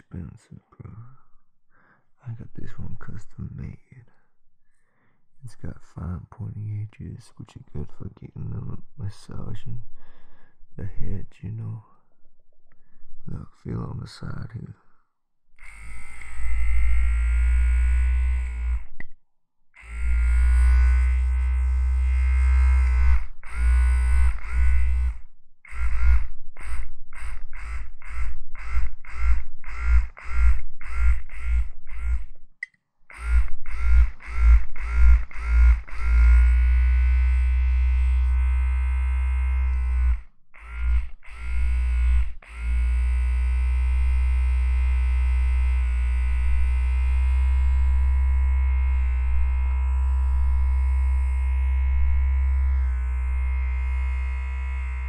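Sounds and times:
low buzzing drone: 15.6 - 19.1, 19.8 - 32.4, 33.1 - 55.0.

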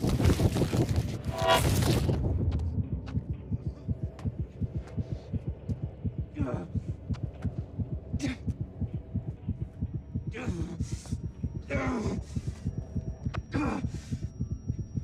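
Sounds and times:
heartbeat thuds: 1.8 - 15.0.

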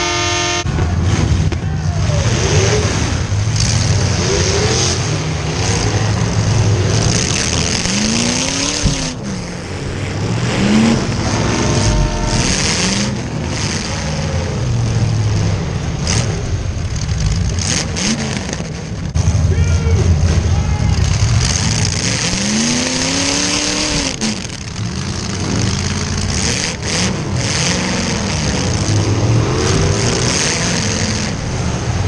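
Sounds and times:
car engines revving: 0.0 - 32.0.

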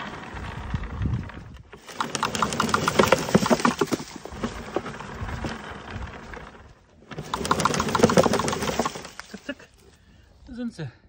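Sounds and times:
leaf collector rattling and clicking: 1.6 - 9.6.

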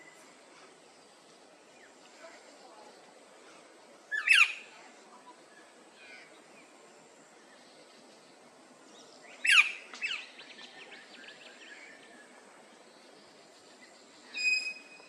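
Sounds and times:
bird whistled calls: 9.4 - 10.3, 14.3 - 15.0.

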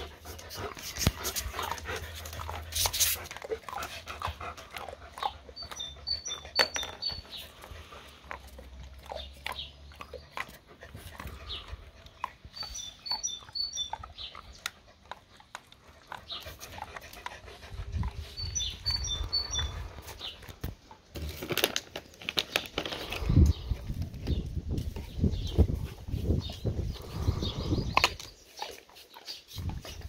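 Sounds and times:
dog chewing a treat: 0.0 - 24.2
high chirps: 5.6 - 7.4, 12.6 - 14.2, 18.3 - 19.8
plastic bag crinkling: 21.1 - 23.6.

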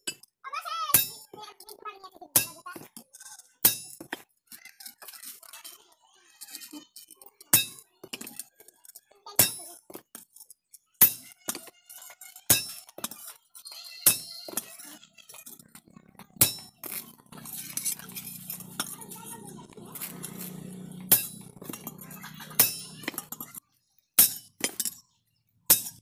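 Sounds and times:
hammer striking metal on anvil: 16.4 - 19.2, 19.9 - 23.6, 24.2 - 25.0, 25.7 - 26.0.

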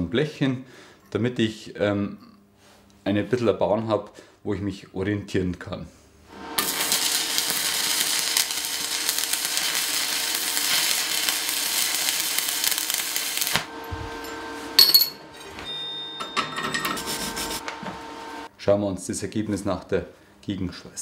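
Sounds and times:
welding arc crackling: 6.3 - 14.7
steady hum: 8.6 - 18.5
sharp metallic clink: 14.2 - 16.9.

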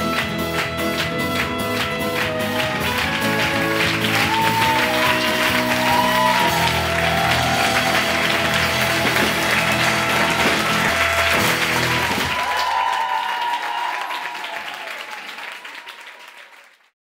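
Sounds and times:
live band music: 0.0 - 12.7
audience applause: 0.0 - 17.0.

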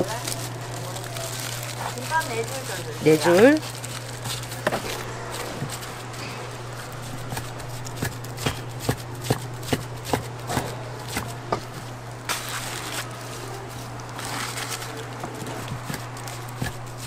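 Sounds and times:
low steady hum: 0.0 - 17.0
knife chopping on cutting board: 7.1 - 11.7, 15.4 - 17.0.

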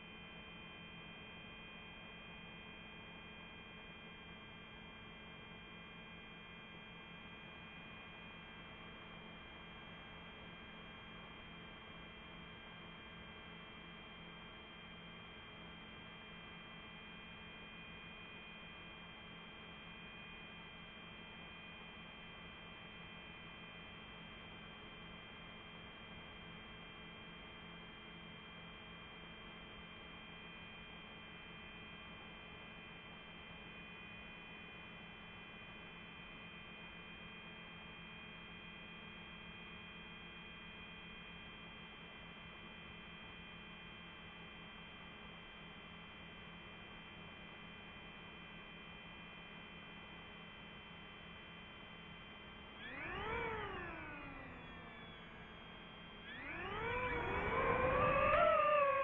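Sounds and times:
faint electronic hum with tones: 0.0 - 59.0
drone electronic hum and whine: 52.2 - 59.0.

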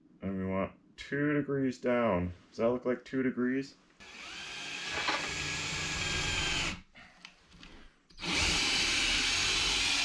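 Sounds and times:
cordless drill boring into wood: 4.0 - 6.8, 8.2 - 10.0.

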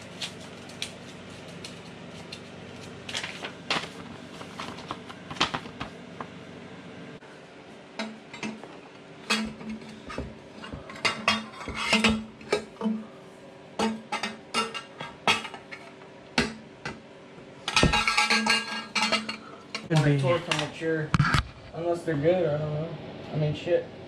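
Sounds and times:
metal pipe clinking against frame: 17.7 - 19.9.

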